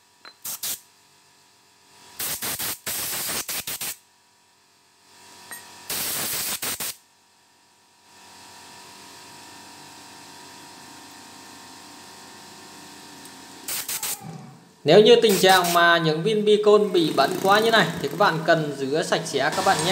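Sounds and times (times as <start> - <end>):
compressed air hissing: 0.4 - 0.8, 2.2 - 4.0, 5.9 - 7.0, 13.7 - 14.6, 15.2 - 16.0.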